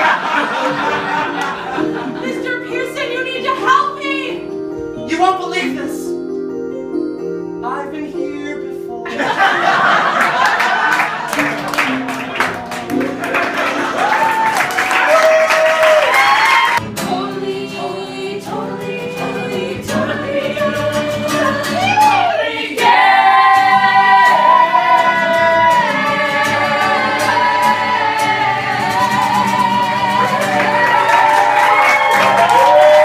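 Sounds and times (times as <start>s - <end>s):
applause: 10.2s - 16.8s, 30.4s - 33.0s
choir singing: 16.2s - 32.5s.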